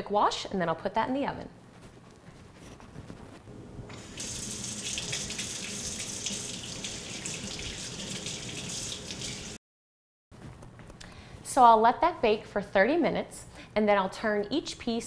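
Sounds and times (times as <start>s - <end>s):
faucet running into sink: 3.9s - 9.6s.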